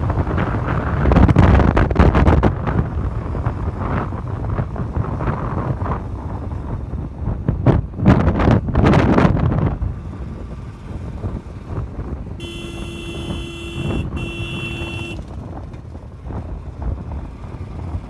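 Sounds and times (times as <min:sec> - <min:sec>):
vehicle road rumble: 0:00.0 - 0:18.0
wind buffeting microphone: 0:00.0 - 0:18.0
vehicle horn blasts: 0:12.4 - 0:15.4.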